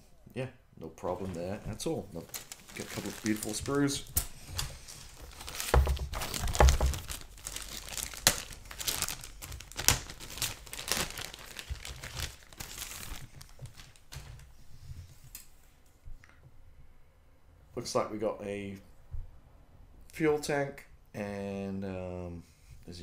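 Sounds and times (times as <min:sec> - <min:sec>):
plastic bag crinkling: 0:01.4 - 0:14.5.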